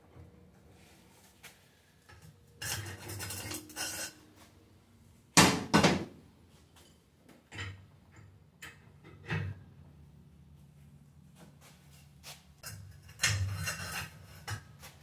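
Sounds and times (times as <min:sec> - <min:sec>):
metal scraping and rattling: 0:02.1 - 0:04.5, 0:12.6 - 0:15.0.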